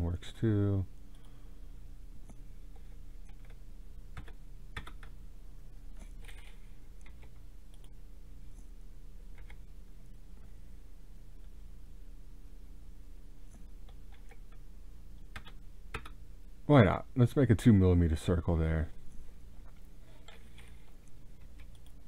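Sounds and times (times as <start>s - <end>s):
low electrical hum: 0.0s - 22.0s
computer mouse clicks: 2.2s - 5.2s, 6.0s - 8.0s, 9.3s - 9.6s, 13.5s - 14.6s, 20.2s - 22.0s
keyboard keystrokes: 3.3s - 5.2s, 15.3s - 16.2s.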